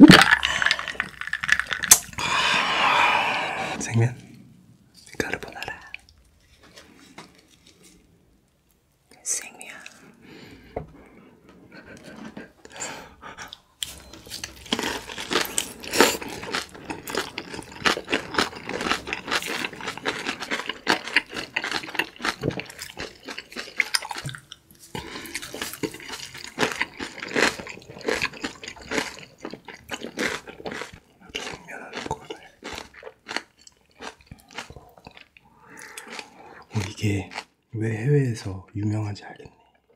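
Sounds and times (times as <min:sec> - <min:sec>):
crisp crunches of cabbage: 0:00.0 - 0:02.4, 0:13.8 - 0:37.5
people chewing noodles: 0:00.0 - 0:04.4, 0:11.7 - 0:37.6.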